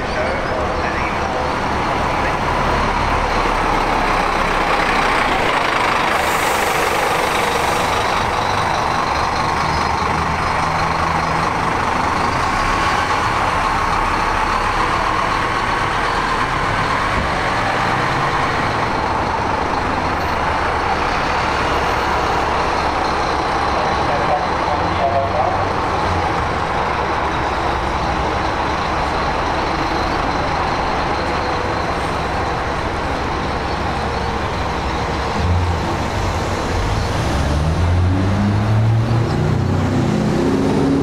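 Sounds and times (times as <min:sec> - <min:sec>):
bus engine running: 0:00.0 - 0:41.0.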